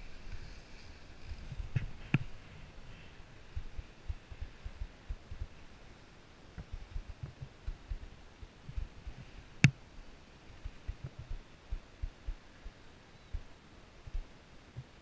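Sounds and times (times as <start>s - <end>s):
muffled low thumps: 3.5s - 5.6s, 6.6s - 9.8s, 10.5s - 13.5s.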